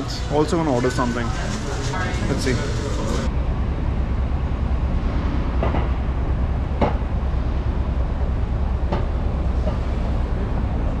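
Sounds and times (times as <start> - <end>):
street traffic rumble: 0.0 - 11.0
sharp knocks: 5.6 - 6.0, 6.8 - 7.1.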